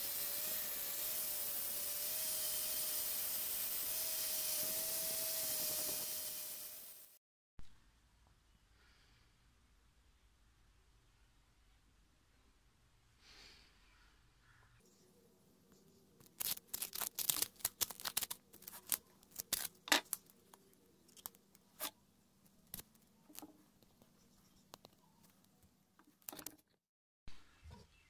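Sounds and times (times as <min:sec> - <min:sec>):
tape peeling off with crackling: 0:16.2 - 0:21.9, 0:22.6 - 0:23.5.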